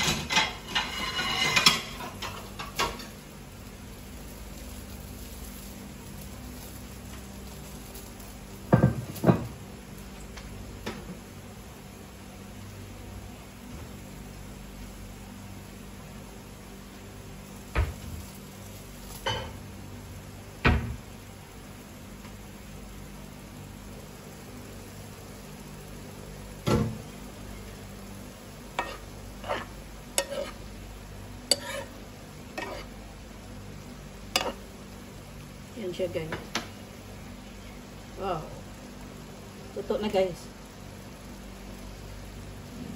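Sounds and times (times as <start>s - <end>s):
utensil scraping frying pan: 0.0s - 3.3s, 28.6s - 30.8s, 31.4s - 33.1s, 34.2s - 34.8s
low kitchen hum: 0.0s - 42.9s.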